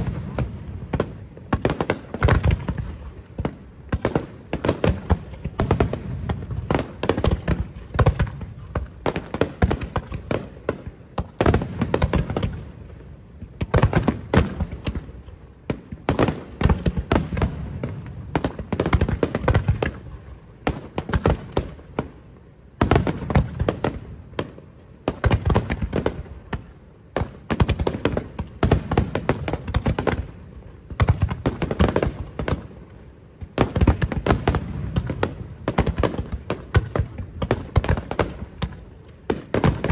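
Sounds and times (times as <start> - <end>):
fireworks bursting with sharp bangs: 0.0 - 39.9.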